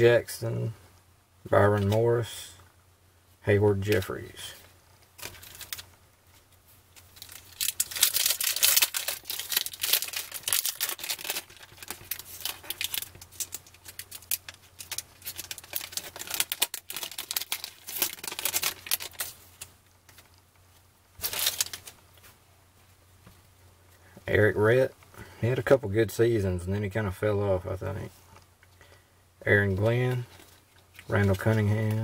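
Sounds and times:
foil wrapper tearing and crinkling: 5.2 - 5.9, 7.0 - 19.7, 21.2 - 22.0.

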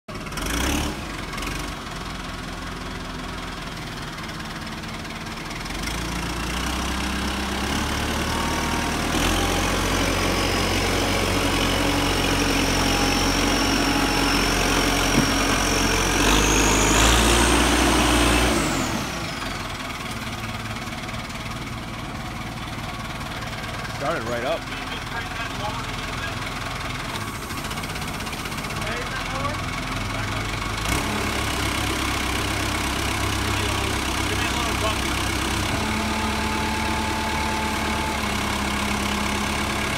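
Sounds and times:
diesel engine revving: 0.1 - 39.9
high engine whine: 5.8 - 26.3.

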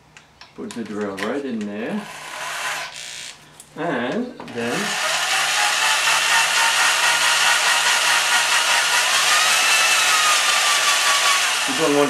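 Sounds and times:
electric drill motor whining: 4.6 - 12.0.

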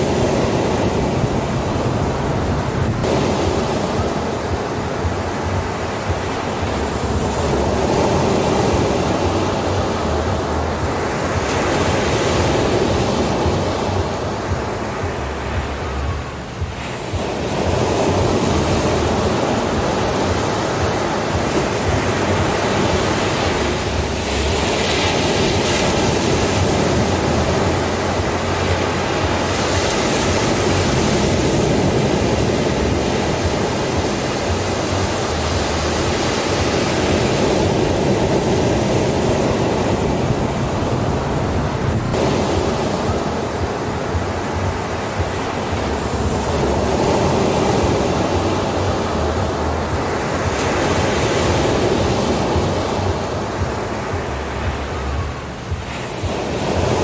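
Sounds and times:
ocean waves breaking on beach: 0.0 - 57.0.

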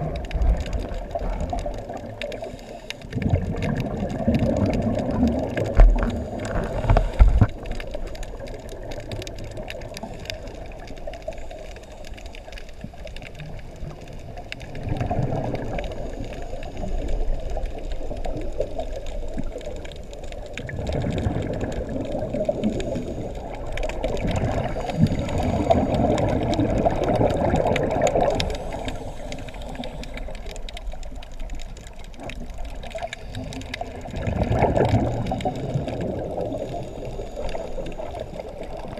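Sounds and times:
muffled underwater noise: 0.0 - 38.9.

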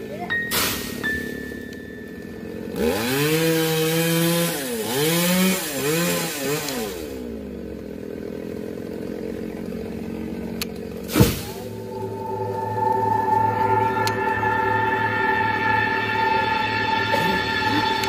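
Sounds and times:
chainsaw cutting wood: 2.4 - 11.7.

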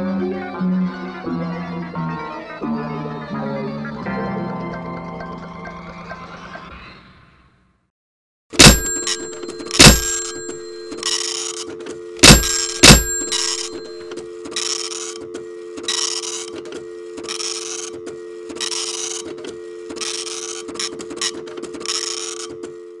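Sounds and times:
dial tone hum: 8.6 - 23.0
telephone line clicks: 8.6 - 23.0.

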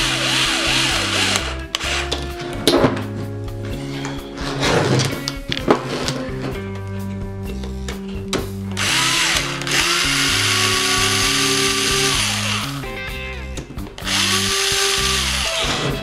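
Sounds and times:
electric screwdriver whining: 0.0 - 2.3, 8.8 - 12.8, 14.0 - 16.0
background music: 0.0 - 16.0.

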